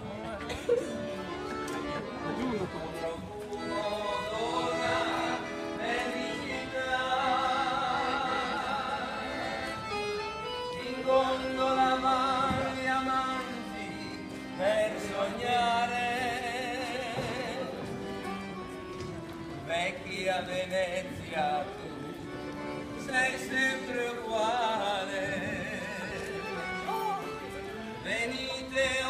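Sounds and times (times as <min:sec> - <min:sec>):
man singing operatically: 0:03.6 - 0:09.6, 0:10.8 - 0:17.8, 0:19.6 - 0:21.8, 0:23.0 - 0:26.9, 0:28.0 - 0:29.0.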